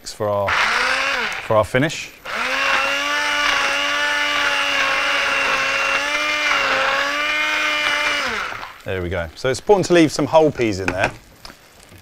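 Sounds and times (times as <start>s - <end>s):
stick blender motor whining: 0.5s - 1.6s, 2.2s - 8.8s.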